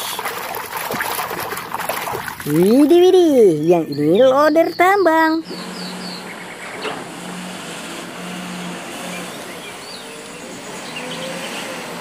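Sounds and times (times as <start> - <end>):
diesel engine running: 2.5 - 12.0.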